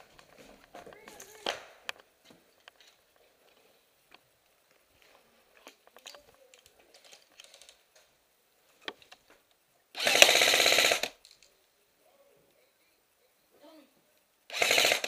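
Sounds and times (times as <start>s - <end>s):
airsoft rifle automatic burst: 10.0s - 11.2s, 14.5s - 15.0s.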